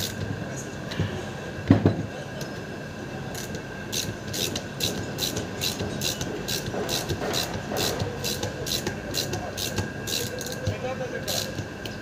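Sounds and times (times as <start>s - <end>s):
thump: 1.7s - 2.0s
socket ratchet clicking: 3.4s - 10.7s.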